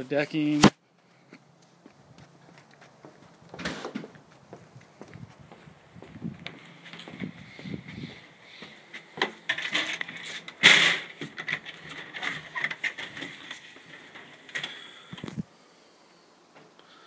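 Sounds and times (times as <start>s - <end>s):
door swinging open scrape: 3.5s - 4.2s, 9.3s - 15.4s.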